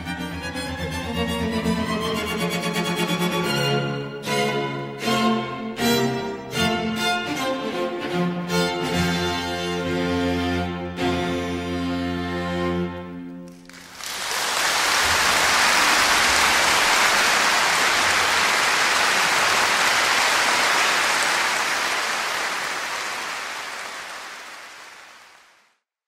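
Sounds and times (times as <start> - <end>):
bowed string music: 0.0 - 13.7.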